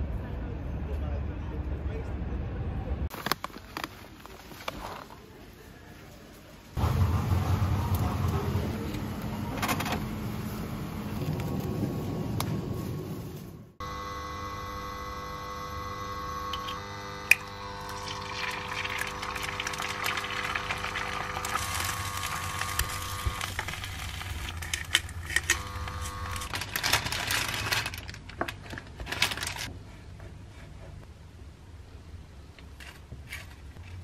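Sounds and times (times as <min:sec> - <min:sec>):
hob humming: 0:13.8 - 0:26.8
egg sizzling in frying pan: 0:17.9 - 0:24.6.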